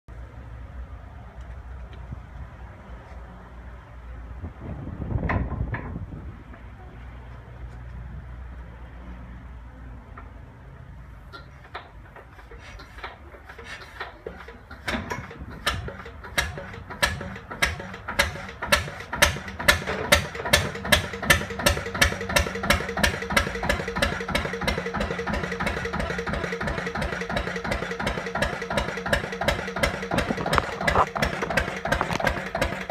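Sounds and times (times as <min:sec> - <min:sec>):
diesel engine running: 0:11.0 - 0:32.9
engine cranking clicks: 0:11.3 - 0:32.9.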